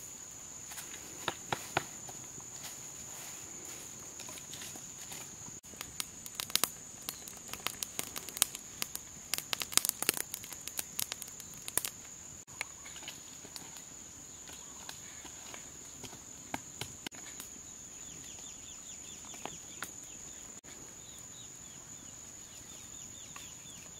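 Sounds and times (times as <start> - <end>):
wood fire crackling and popping: 4.2 - 12.4.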